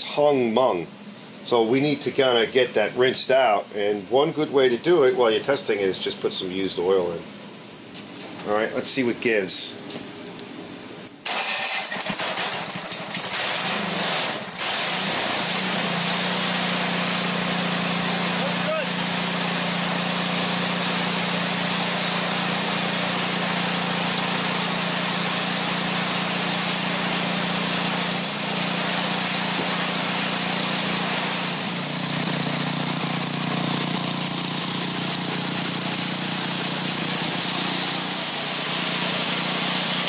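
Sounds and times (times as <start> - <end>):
single-cylinder engine idling: 31.8 - 39.5.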